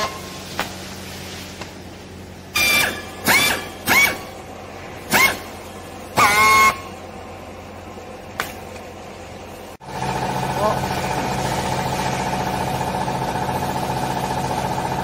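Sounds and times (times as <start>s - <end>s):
strapping tool motor whining: 2.6s - 4.4s.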